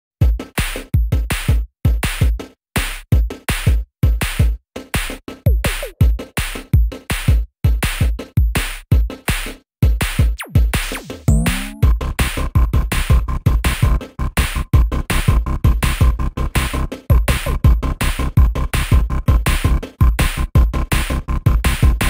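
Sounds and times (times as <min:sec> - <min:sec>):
electronic music with drum-machine beat: 0:00.2 - 0:22.0
sliding-pitch effect: 0:11.3 - 0:11.9.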